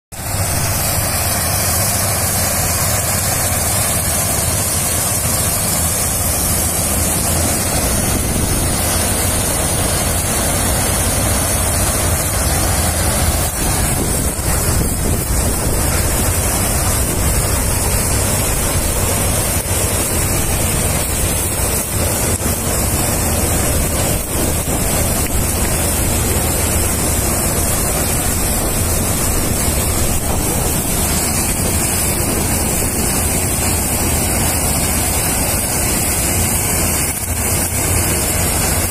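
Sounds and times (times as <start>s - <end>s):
combine harvester running: 0.1s - 38.9s
wind buffeting microphone: 0.2s - 38.9s.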